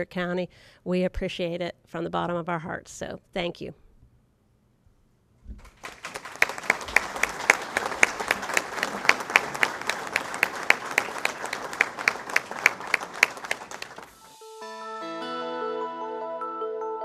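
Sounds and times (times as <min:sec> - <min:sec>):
close person clapping: 0:05.5 - 0:14.2
audience applauding: 0:05.6 - 0:14.2.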